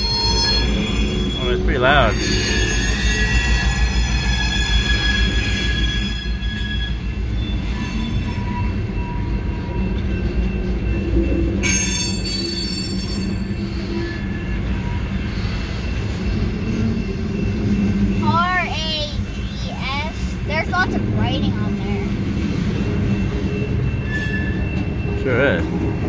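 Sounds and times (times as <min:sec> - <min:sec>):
high-pitched wheel squeal: 0:00.0 - 0:09.6, 0:11.6 - 0:18.8, 0:22.8 - 0:25.6
freight cars rumbling: 0:00.0 - 0:26.0.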